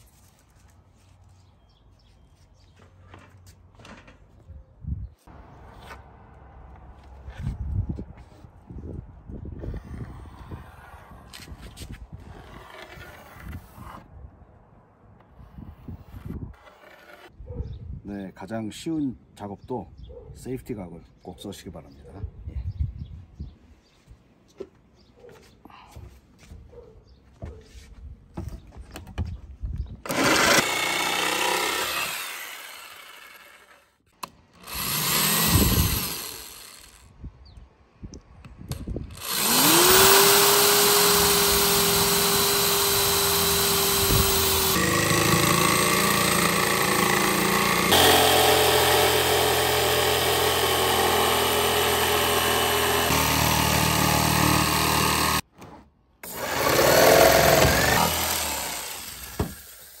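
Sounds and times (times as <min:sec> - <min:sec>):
electric drill boring: 0:30.1 - 0:33.8, 0:34.6 - 0:37.0, 0:39.1 - 0:55.4, 0:56.2 - 1:00.0
jigsaw sawing plywood: 0:30.1 - 0:33.9, 0:34.6 - 0:37.0, 0:39.2 - 0:55.4, 0:56.2 - 0:59.9.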